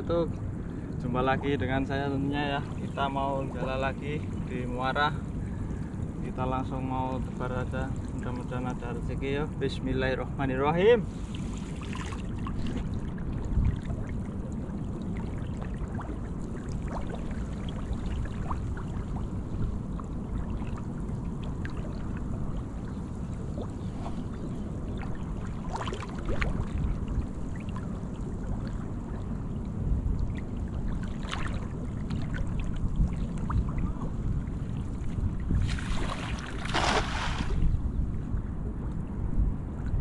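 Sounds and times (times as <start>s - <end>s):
wind rumble on microphone: 0.0s - 40.0s
water sloshing and dripping: 11.1s - 37.6s.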